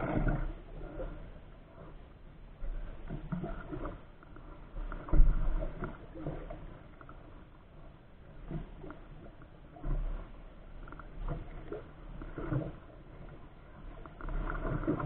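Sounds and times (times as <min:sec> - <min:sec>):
paddle strokes splashing in water: 0:00.0 - 0:02.0, 0:02.6 - 0:07.5, 0:08.2 - 0:15.0.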